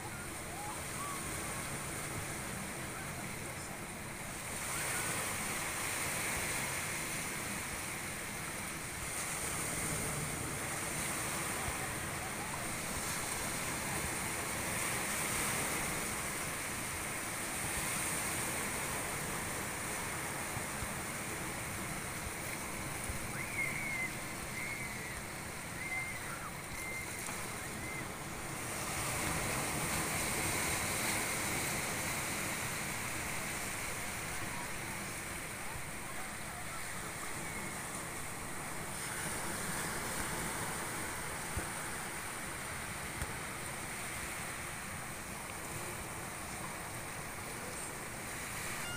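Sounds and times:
waves washing over rocks: 0.0s - 48.9s
faint high chirps: 23.3s - 28.1s.

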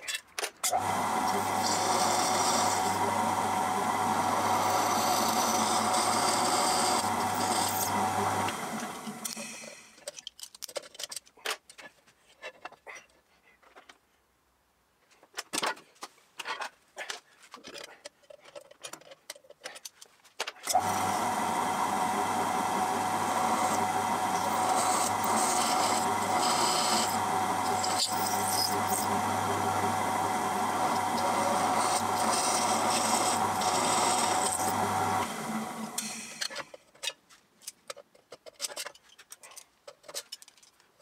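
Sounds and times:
drill press drilling metal: 0.7s - 9.9s, 20.7s - 36.6s.

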